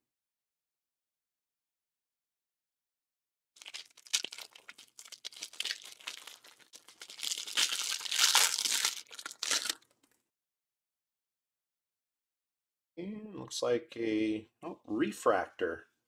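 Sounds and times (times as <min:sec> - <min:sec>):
plastic wrapper tearing and crinkling: 0:03.6 - 0:10.0.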